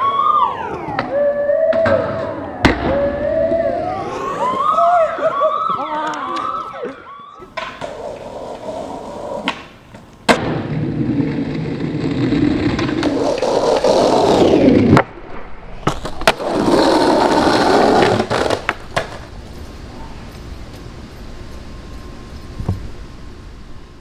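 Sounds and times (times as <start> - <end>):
skateboard wheels rolling on asphalt: 2.1 - 24.0
skateboard clacking on ground: 7.4 - 10.4, 15.8 - 20.9.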